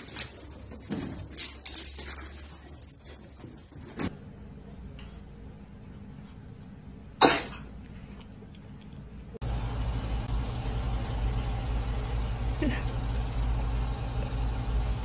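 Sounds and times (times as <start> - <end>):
steady low hum: 4.1 - 15.0
cat sneezing: 7.2 - 7.7.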